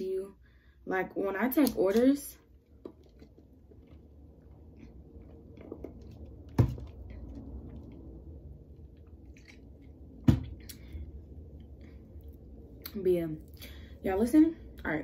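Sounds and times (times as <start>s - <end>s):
person sipping and swallowing: 2.6s - 12.9s.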